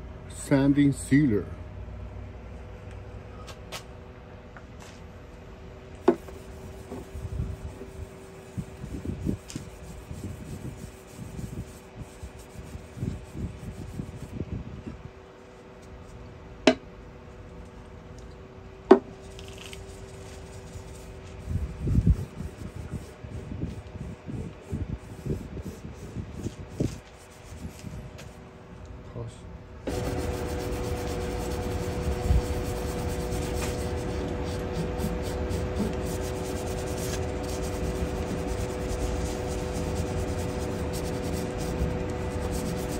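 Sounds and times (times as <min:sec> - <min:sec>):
faint steady hum: 0:00.0 - 0:42.9
hand rubbing wood: 0:06.0 - 0:14.4, 0:19.3 - 0:28.4, 0:29.9 - 0:42.9.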